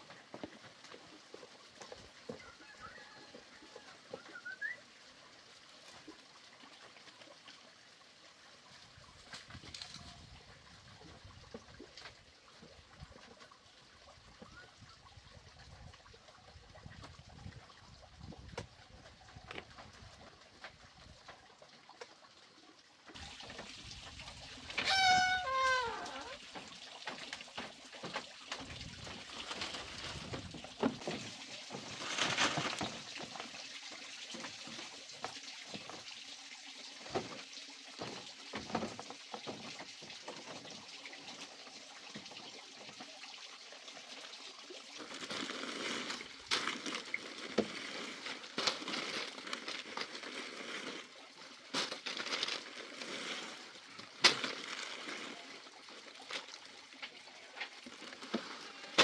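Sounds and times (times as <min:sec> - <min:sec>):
leaves rustling: 0:24.3 - 0:26.7, 0:28.1 - 0:33.5, 0:45.0 - 0:59.0
loud animal call: 0:24.9 - 0:26.4.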